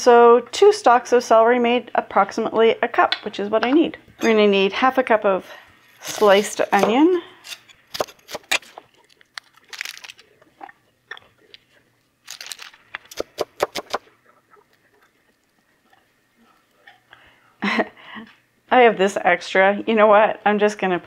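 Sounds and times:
onion slices crunching and snapping: 6.0 - 10.3, 12.2 - 14.1.

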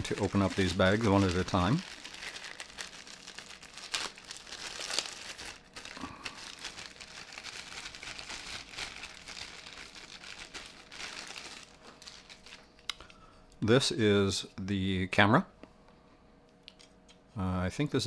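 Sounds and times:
plastic bag crinkling: 0.0 - 13.1.

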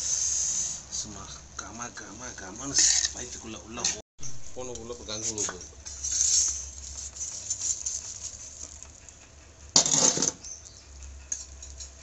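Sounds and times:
metal spoon scraping charcoal: 2.6 - 4.0, 4.6 - 12.0
coals clattering onto metal lid: 5.3 - 10.4.

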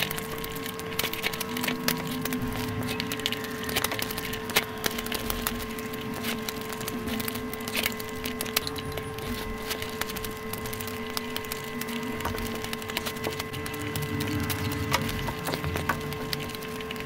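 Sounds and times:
person chewing food: 0.0 - 17.0.

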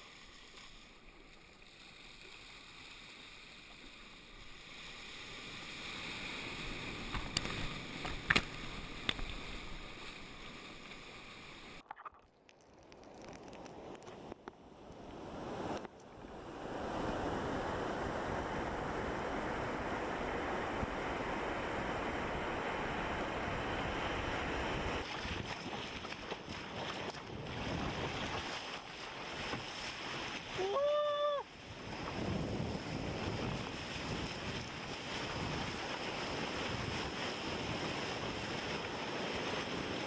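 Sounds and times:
surf and whitewater rushing: 1.7 - 11.8, 15.0 - 40.0
high-pitched shout: 30.6 - 31.5
wind buffeting microphone: 31.7 - 40.0.

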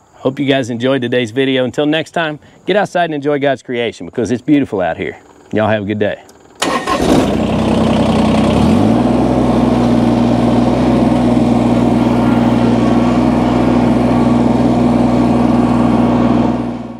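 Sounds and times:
tractor diesel engine running: 5.0 - 16.9.

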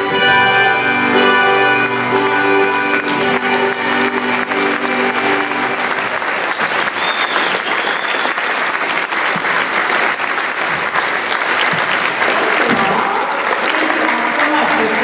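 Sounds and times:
band music held notes: 0.0 - 6.5
audience applauding: 1.2 - 15.0.

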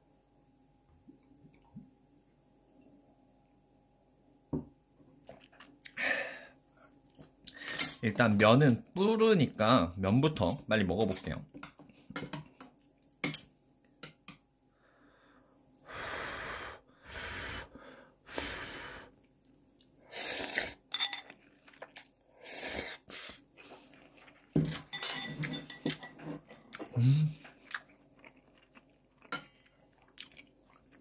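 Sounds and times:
person slurping noodles: 20.1 - 20.8.

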